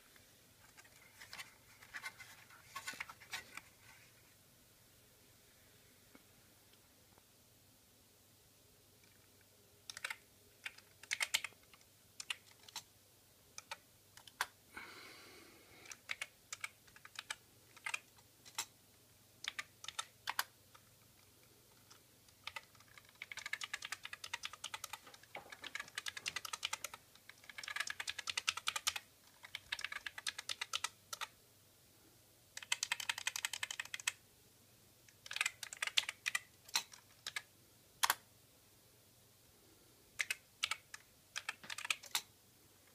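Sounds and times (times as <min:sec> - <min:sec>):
computer keyboard key clicks: 0:09.9 - 0:11.5, 0:19.5 - 0:20.5, 0:22.4 - 0:31.3, 0:32.6 - 0:34.2, 0:35.2 - 0:38.2, 0:40.2 - 0:42.3.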